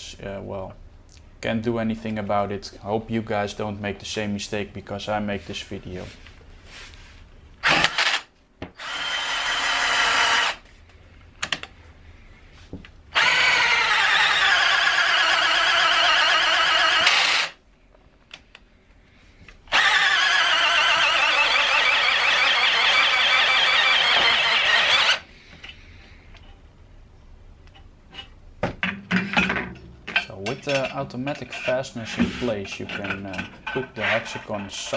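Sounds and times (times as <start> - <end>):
power drill motor whining: 7.6 - 10.6, 13.1 - 17.6, 19.7 - 25.3.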